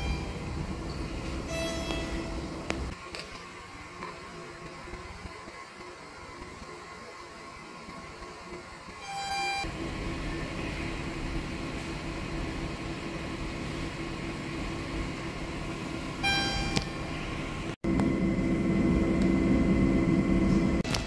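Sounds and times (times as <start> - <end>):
steady low hum: 9.7 - 21.0.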